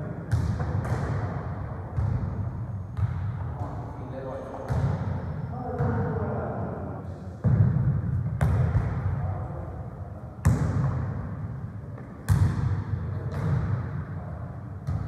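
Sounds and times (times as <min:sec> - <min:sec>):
football kicked and bouncing: 0:00.3 - 0:03.7, 0:07.4 - 0:09.0, 0:12.0 - 0:13.8.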